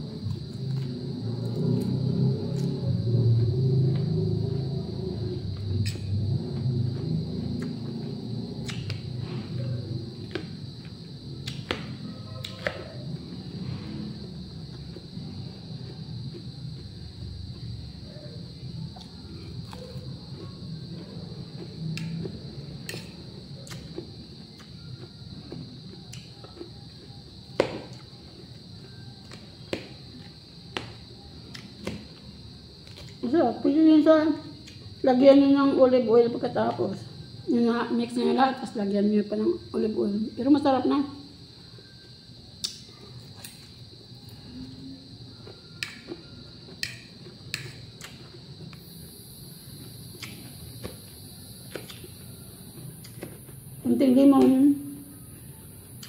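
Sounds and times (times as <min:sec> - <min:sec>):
soft chewing: 0:15.8 - 0:30.4
fork clicking against plate: 0:45.8 - 0:46.1, 0:46.8 - 0:48.2.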